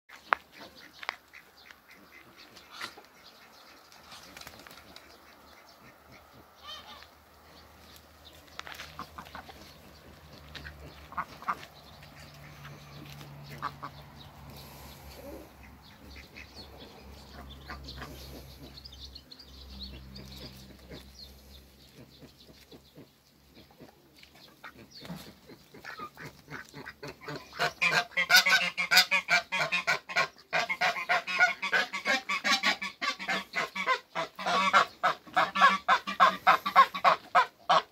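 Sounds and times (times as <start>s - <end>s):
chickens calling: 0.1s - 37.9s
goose honking: 5.2s - 7.2s, 10.4s - 12.9s, 25.8s - 37.9s
duck calling: 25.8s - 37.9s.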